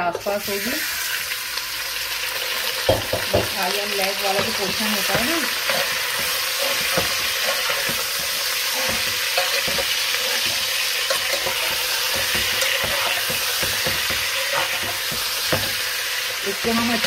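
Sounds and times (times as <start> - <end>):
chicken sizzling in hot oil: 0.0 - 17.0
metal spoon scraping a pot: 4.3 - 17.0.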